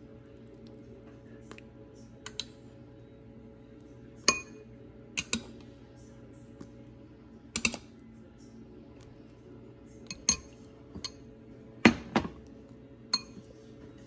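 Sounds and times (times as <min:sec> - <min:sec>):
metal spoon clinking on glass: 0:04.3 - 0:04.6, 0:10.1 - 0:11.2, 0:13.1 - 0:13.4.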